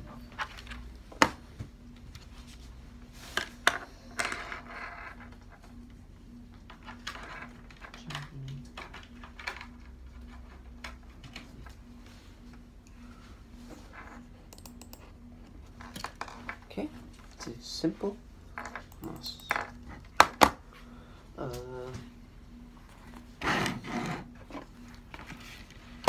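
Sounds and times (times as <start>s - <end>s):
computer mouse clicks and knocks: 14.5s - 15.1s.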